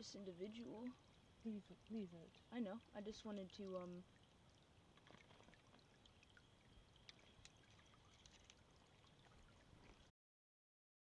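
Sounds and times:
creek trickling over gravel: 0:00.0 - 0:10.1
small ticks: 0:05.0 - 0:08.6.

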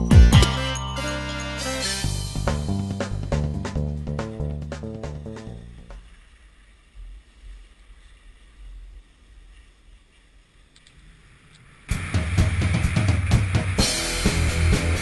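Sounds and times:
rock music with heavy drums: 0:00.0 - 0:05.5, 0:11.9 - 0:15.0.

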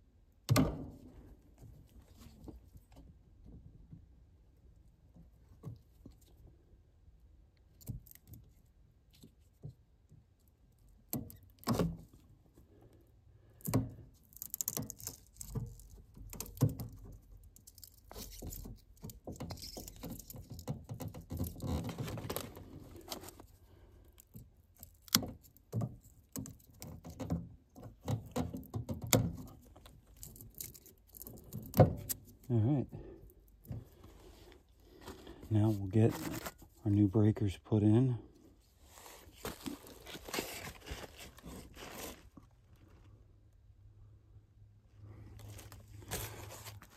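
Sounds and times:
rustling and scraping: 0:00.9 - 0:03.6, 0:11.6 - 0:37.0, 0:38.4 - 0:43.3, 0:45.0 - 0:46.9.

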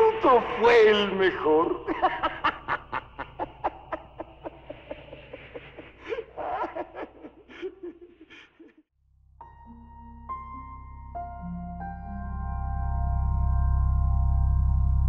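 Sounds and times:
person laughing breathily: 0:01.7 - 0:08.8.

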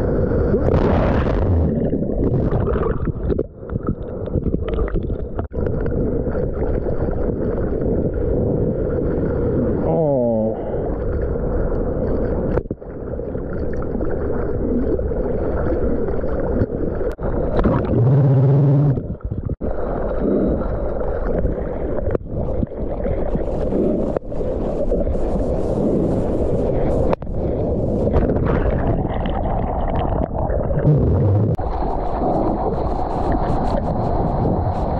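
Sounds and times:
seawater splashing and rushing: 0:10.7 - 0:34.9.

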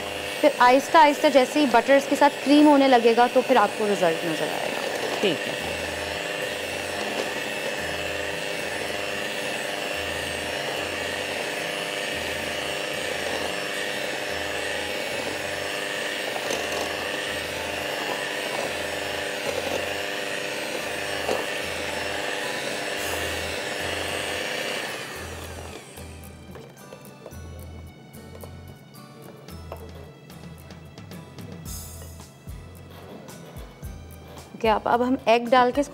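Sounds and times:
electric beater motor whine: 0:00.0 - 0:27.3.

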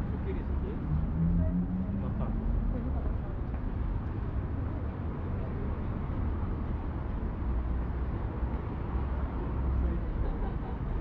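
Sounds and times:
passing traffic rumble: 0:00.0 - 0:11.0.

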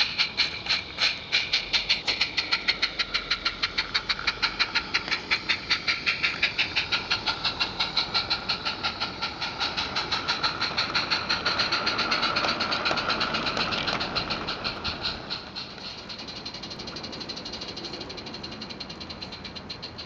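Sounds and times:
steam locomotive chuffing: 0:00.0 - 0:20.0.

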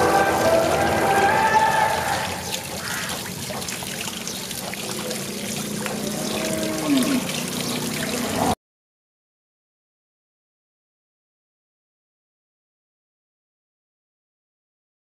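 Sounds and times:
water running from tap: 0:00.0 - 0:08.6
water splashing over meat: 0:00.0 - 0:08.6.

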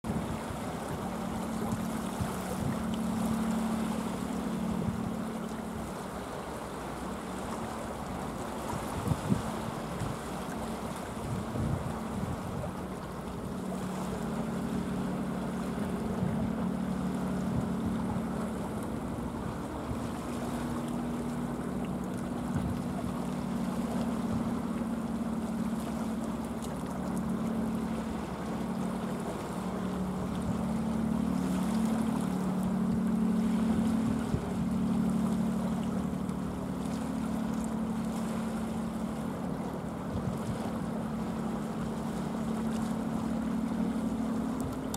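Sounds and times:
wind on microphone: 0:00.0 - 0:03.4, 0:08.7 - 0:10.4, 0:11.0 - 0:12.9, 0:22.2 - 0:24.8, 0:33.4 - 0:35.0
low engine drone: 0:00.0 - 0:44.9
sea waves washing: 0:00.0 - 0:44.9.

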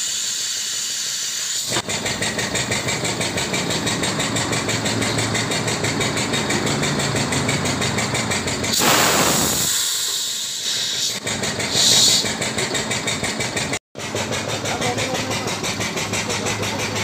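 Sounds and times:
short air hiss: 0:00.0 - 0:01.8, 0:08.7 - 0:12.4
machine running noise: 0:00.0 - 0:17.0
compressed air rushing: 0:00.2 - 0:17.0.

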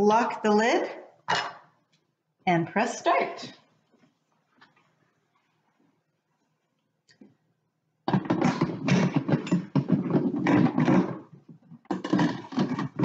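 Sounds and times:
lid scraping and rattling on pot: 0:08.1 - 0:13.0.

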